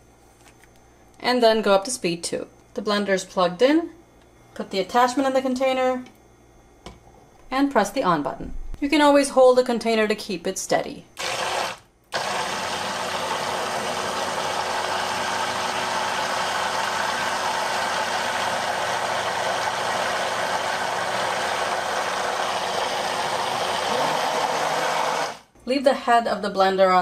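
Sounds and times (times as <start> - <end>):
hand blender motor whine: 11.2 - 25.5.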